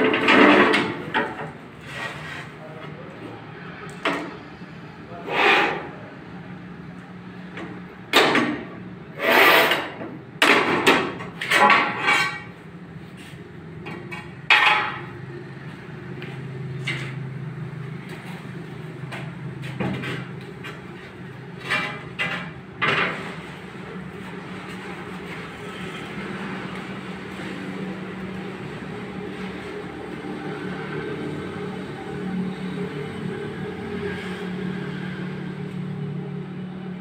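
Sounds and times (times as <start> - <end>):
tile cutter scratching: 9.2 - 9.9.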